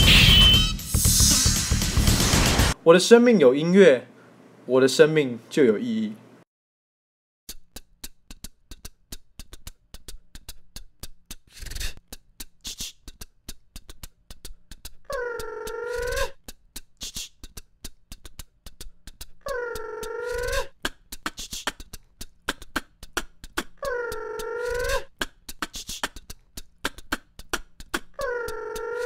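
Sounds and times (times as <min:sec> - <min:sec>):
beatbox hissing snare: 0:00.0 - 0:02.8, 0:07.5 - 0:15.0, 0:16.5 - 0:19.4, 0:20.5 - 0:23.8, 0:24.9 - 0:28.2
beatbox mouth clicks: 0:07.5 - 0:29.0
beatbox kick thump: 0:20.7 - 0:23.8.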